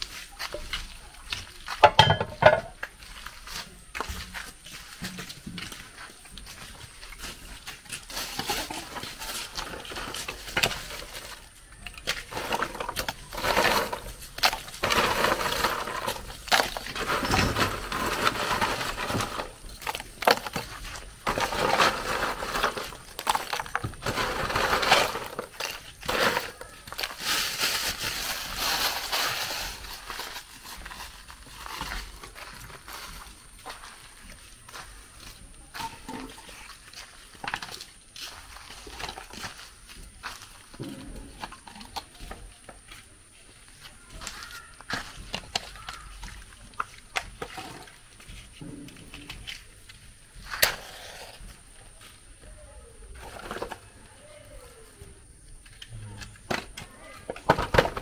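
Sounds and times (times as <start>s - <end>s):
crunching and clattering: 0.0s - 54.1s, 55.3s - 58.0s.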